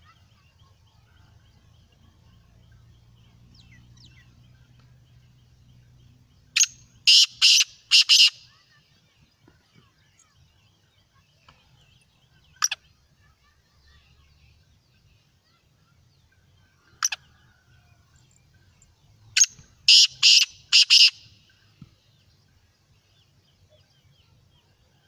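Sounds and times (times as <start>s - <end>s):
bird harsh grating call: 6.6s - 8.5s, 19.4s - 21.3s.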